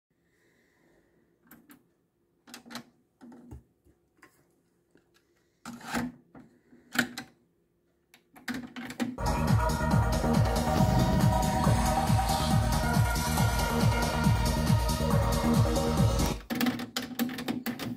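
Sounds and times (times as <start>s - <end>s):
music from cassette tape: 9.2s - 16.5s.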